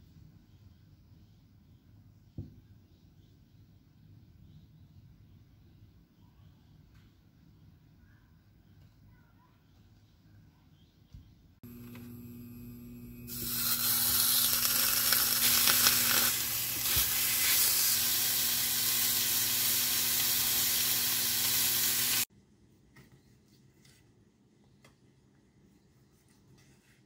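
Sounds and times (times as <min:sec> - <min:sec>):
faint low hum: 0:00.0 - 0:13.8
steak sizzling in a pan: 0:13.3 - 0:22.3.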